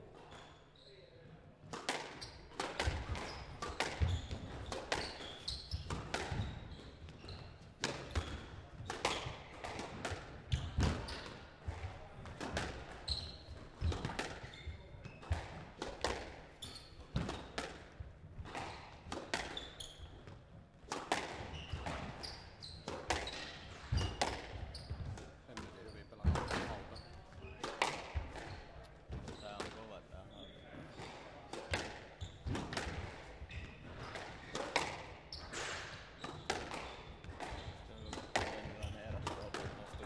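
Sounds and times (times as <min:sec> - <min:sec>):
squash ball smacks: 0:01.7 - 0:05.2, 0:07.8 - 0:13.0, 0:13.8 - 0:14.5, 0:15.2 - 0:16.5, 0:17.1 - 0:19.6, 0:20.9 - 0:22.2, 0:22.8 - 0:26.8, 0:27.6 - 0:29.8, 0:31.0 - 0:39.8
shoes squeaking on wooden floor: 0:03.2 - 0:08.5, 0:13.0 - 0:15.4, 0:21.5 - 0:27.6, 0:28.3 - 0:31.0, 0:33.3 - 0:40.0.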